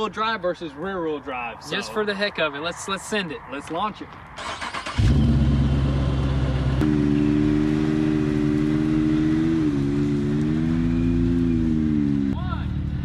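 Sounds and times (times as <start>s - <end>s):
car engines running: 4.5s - 13.0s.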